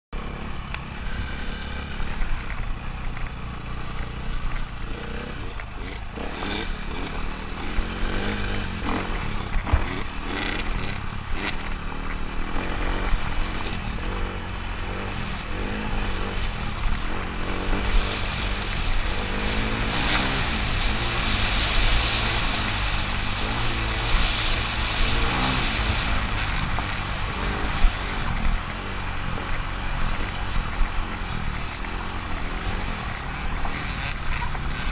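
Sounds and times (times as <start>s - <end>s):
dirt bike engine revving: 0.2s - 34.9s.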